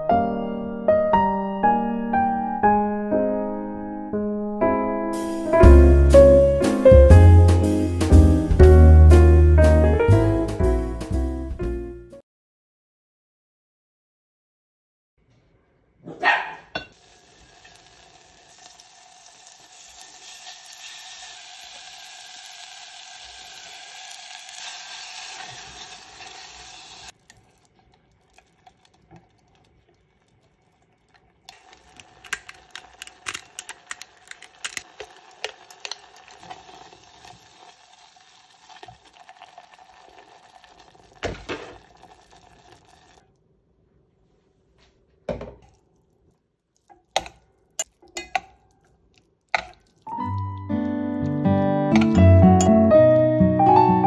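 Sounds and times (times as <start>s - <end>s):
butter sizzling in a saucepan: 16.9s - 29.7s, 30.4s - 43.2s, 46.8s - 50.8s.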